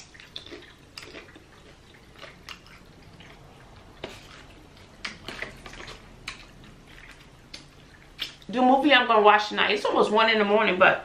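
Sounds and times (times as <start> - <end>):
person chewing crunchy chips: 0.0 - 8.5.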